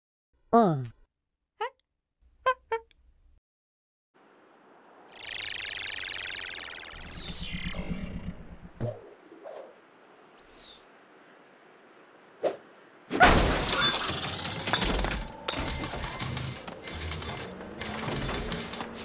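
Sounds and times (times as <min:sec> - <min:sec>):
cartoon swish: 0:05.1 - 0:07.7
loud smash: 0:13.1 - 0:13.9
clattering effects: 0:13.1 - 0:19.0.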